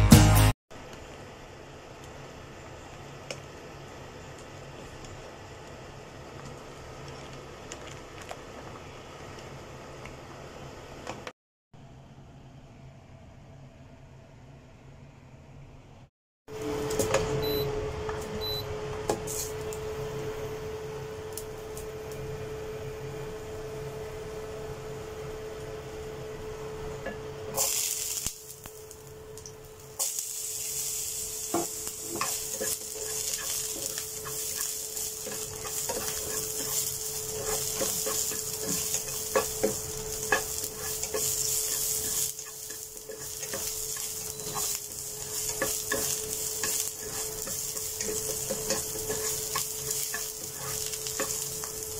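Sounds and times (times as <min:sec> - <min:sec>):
garlic sizzling in hot oil: 0:27.6 - 0:51.9
spatula scraping and tapping pan: 0:31.5 - 0:51.9.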